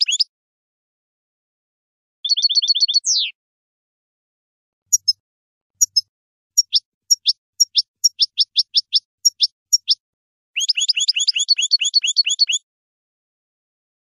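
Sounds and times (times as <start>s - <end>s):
goldfinch singing: 0.0s - 0.3s, 2.2s - 3.4s, 4.9s - 5.2s, 5.8s - 10.0s, 10.6s - 12.6s.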